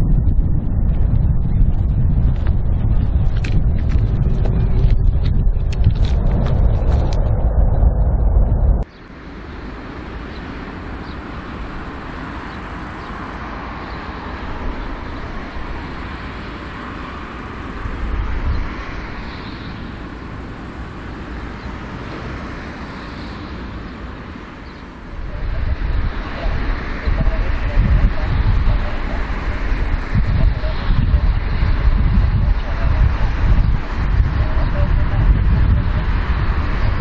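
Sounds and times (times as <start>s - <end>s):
jet engines hissing and rumbling: 0.0s - 37.0s.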